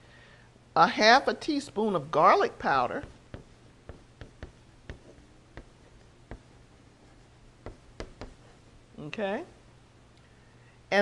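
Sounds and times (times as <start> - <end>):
chalk tapping on chalkboard: 2.8 - 8.7.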